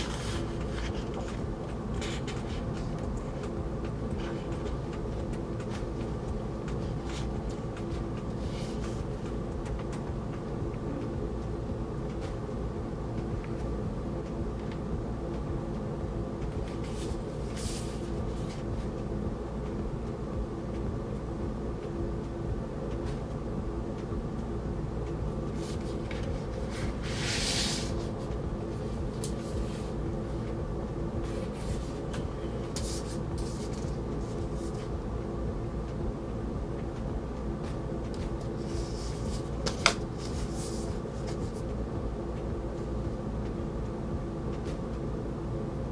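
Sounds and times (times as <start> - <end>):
paper pages rustling: 0.0 - 1.4, 25.6 - 28.2, 32.7 - 34.9, 38.6 - 41.6
low background hum: 0.0 - 45.9.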